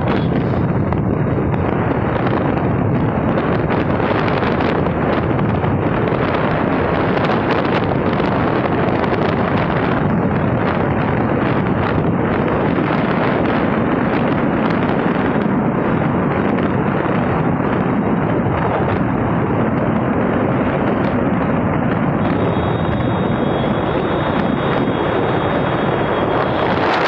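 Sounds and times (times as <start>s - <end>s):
wind rushing over microphone: 0.0s - 27.0s
faint high whine: 22.2s - 26.8s.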